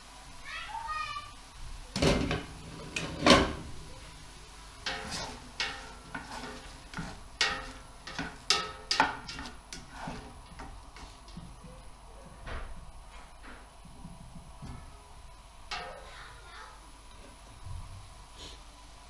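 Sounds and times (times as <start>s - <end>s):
faint sizzle of frying: 0.0s - 19.0s
spoon scraping steel pot: 4.8s - 10.7s
spoon knocking pot: 4.8s - 11.7s.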